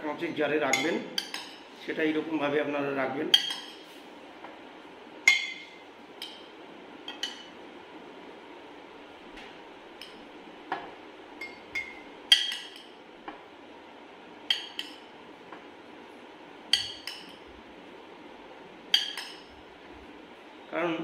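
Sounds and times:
metal spoon clinking on glass: 14.5 - 15.0, 18.9 - 19.5.

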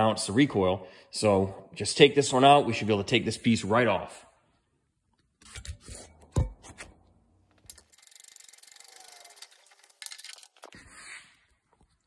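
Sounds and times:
ratchet wrench clicking: 7.7 - 10.1.

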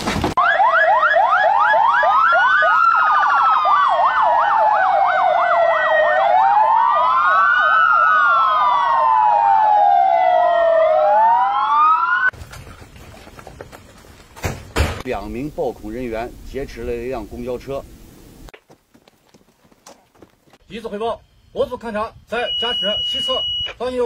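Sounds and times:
police sirens: 0.4 - 12.3.

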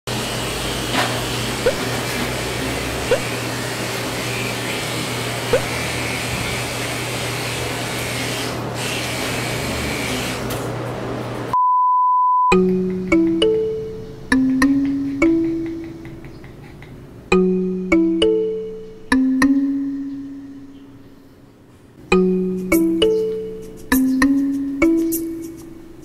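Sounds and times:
electric clippers buzzing: 3.2 - 10.6
plucked guitar music: 12.5 - 16.4, 17.3 - 21.1, 22.1 - 26.0.

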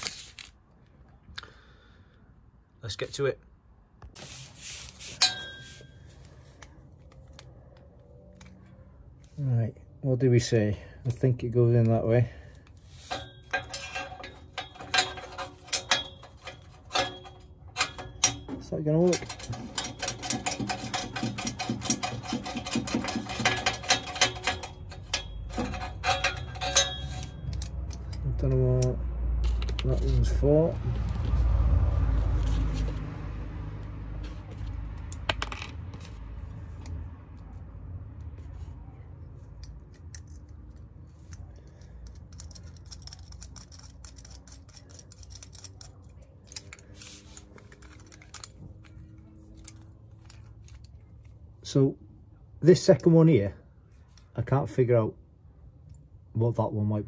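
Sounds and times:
small metal parts clinking: 13.0 - 30.4, 39.5 - 51.4
small metallic clicks: 39.4 - 51.4.

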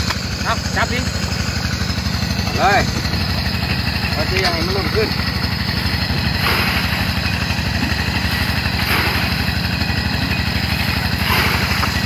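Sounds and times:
small engine running: 0.0 - 12.0
wet sloshes of mud: 5.4 - 12.0.

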